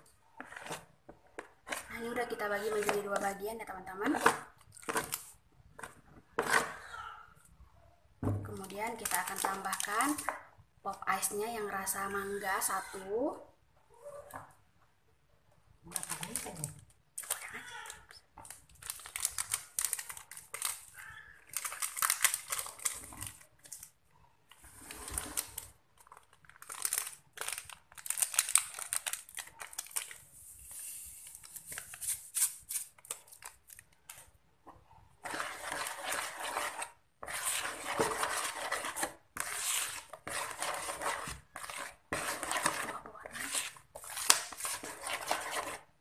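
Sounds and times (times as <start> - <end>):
spatula stirring and scraping mixture: 0.0 - 7.2, 8.6 - 10.6, 11.2 - 13.5, 20.0 - 25.7, 34.1 - 46.0
plastic sachet crinkling and tearing: 18.4 - 23.9, 25.4 - 30.2, 31.2 - 34.2.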